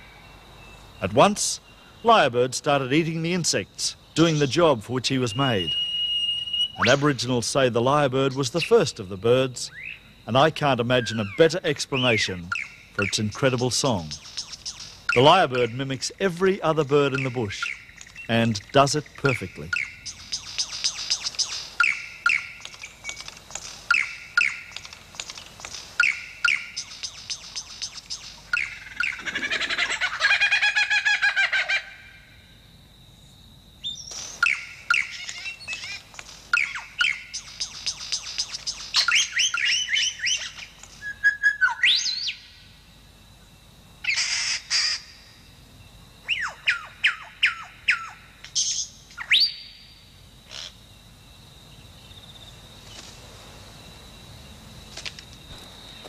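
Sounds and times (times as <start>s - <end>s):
lyrebird mimicking bird calls: 11.0s - 32.0s, 34.4s - 42.4s, 44.0s - 45.1s.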